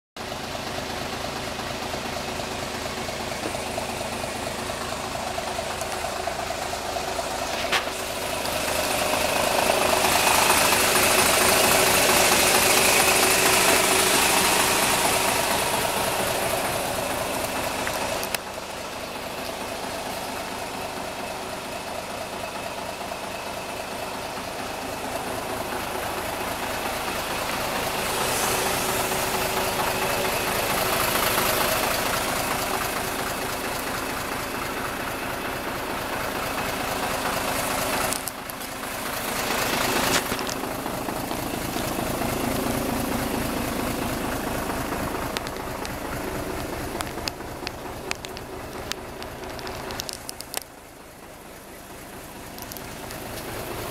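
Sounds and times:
diesel engine idling: 0.2 - 53.9.

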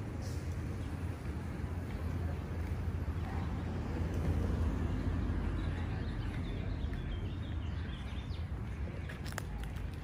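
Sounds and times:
low street rumble: 0.0 - 10.0.

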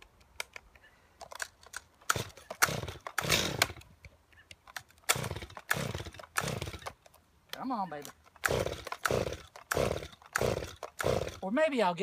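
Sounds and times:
chainsaw engine turning over: 2.0 - 3.9, 4.9 - 7.0, 8.3 - 11.4.

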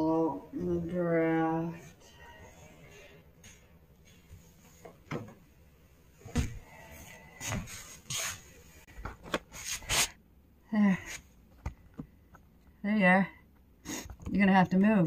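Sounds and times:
knocks and clunks: 4.8 - 5.4, 6.2 - 6.7.

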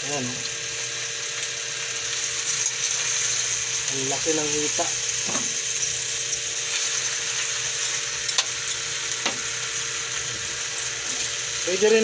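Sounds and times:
chicken sizzling in a pan: 0.0 - 12.0
tongs clicking against pan: 8.3 - 8.6.

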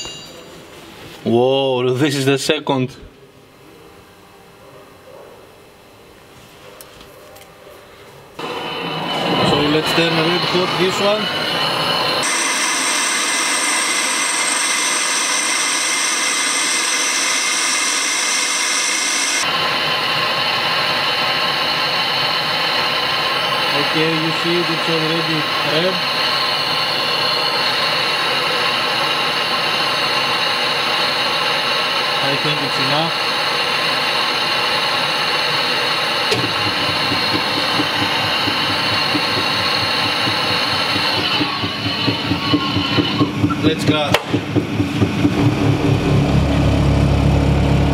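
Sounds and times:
blowtorch flame hissing: 8.4 - 44.3
low pulsing motor: 36.2 - 47.9.

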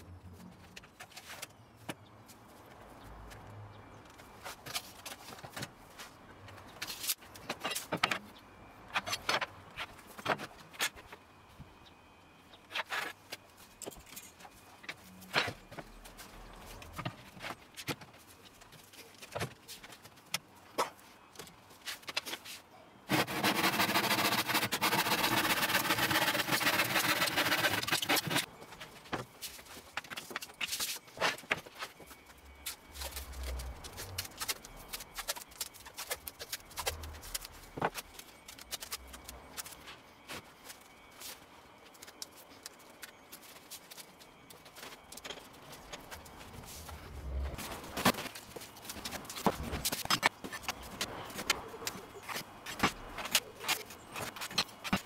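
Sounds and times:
hand saw cutting wood: 23.1 - 28.4.

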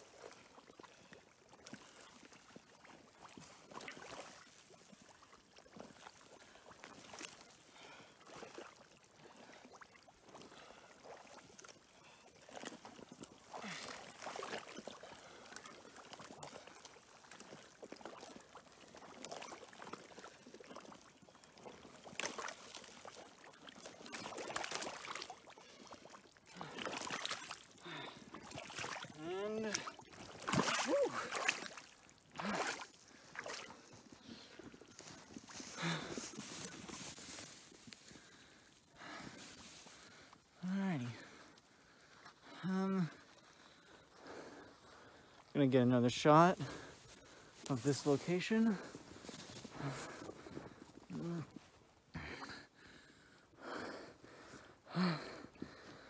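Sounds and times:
splashes of wading: 0.0 - 53.1
creek water sloshing and trickling: 0.0 - 56.0.

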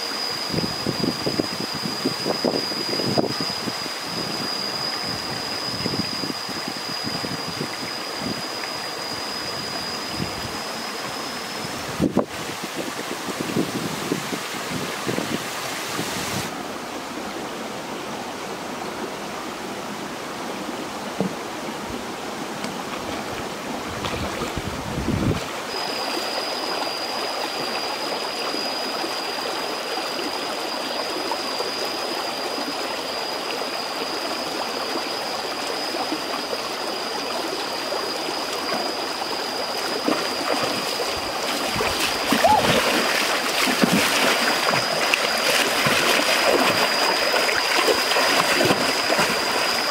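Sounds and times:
steady high-pitched tone: 0.0 - 22.7, 25.5 - 49.9
stream flowing over stones: 25.4 - 49.9.

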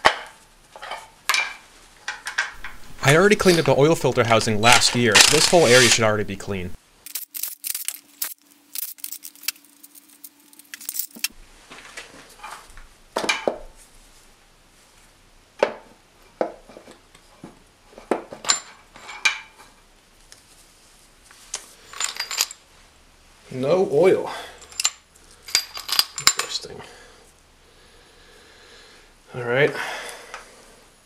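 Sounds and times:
metallic clinks and knocks: 0.8 - 2.9, 7.1 - 11.3, 21.8 - 22.6, 24.6 - 26.6.

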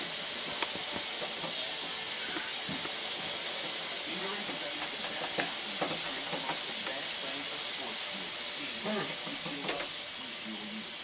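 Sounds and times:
tap water running into colander: 0.0 - 11.0.

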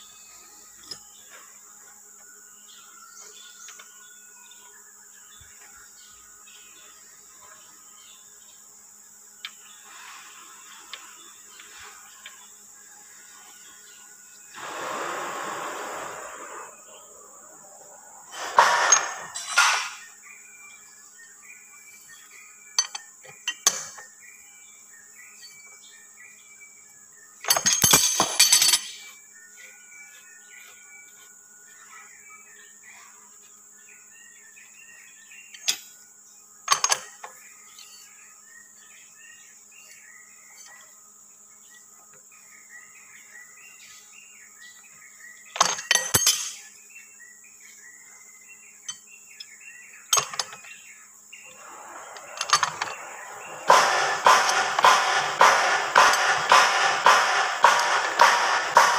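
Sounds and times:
bird chirps: 0.0 - 27.8, 28.9 - 58.9
high insect drone: 0.0 - 58.9
metal tools clinking and clattering: 18.4 - 20.0, 27.5 - 29.1, 45.6 - 46.6.

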